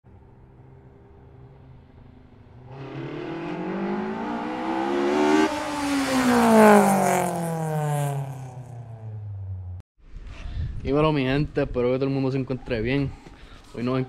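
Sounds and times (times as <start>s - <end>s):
car engine revving: 0.5s - 9.8s.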